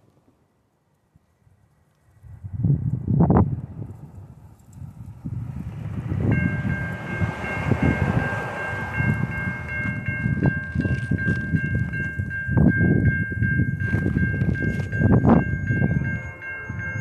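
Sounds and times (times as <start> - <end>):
wind rumble: 1.5 - 17.0
car passing: 3.8 - 12.5
crossing warning bell ringing: 5.9 - 17.0.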